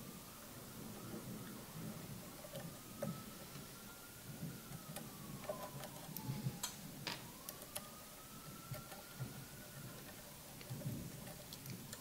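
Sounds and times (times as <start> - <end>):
allen key ticking and clicking: 7.4 - 12.0.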